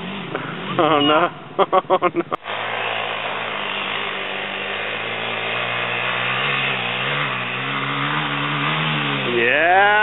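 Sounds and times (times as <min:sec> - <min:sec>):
dirt bike engine approaching: 0:00.0 - 0:10.0.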